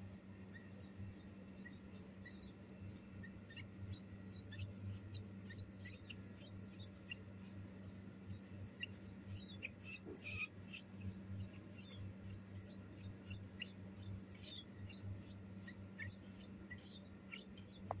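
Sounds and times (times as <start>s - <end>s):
nestlings chirping: 0.0s - 18.0s.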